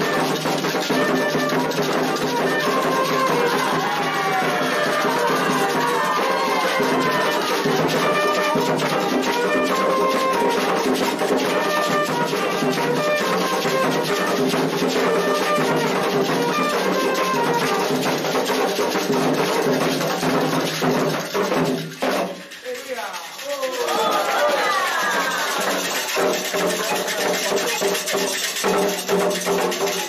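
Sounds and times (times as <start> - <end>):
bugle playing held notes: 0.0 - 10.8
drums: 0.0 - 30.0
hand clapping: 19.9 - 30.0.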